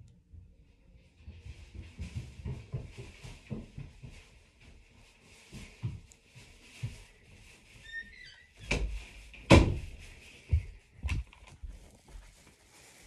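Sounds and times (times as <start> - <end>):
door opening and shutting: 7.9 - 9.8.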